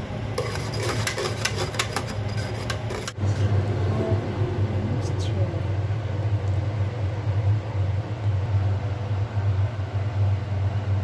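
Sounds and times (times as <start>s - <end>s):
steady low hum: 0.0s - 11.0s
whisk clicking against metal bowl: 0.4s - 3.2s.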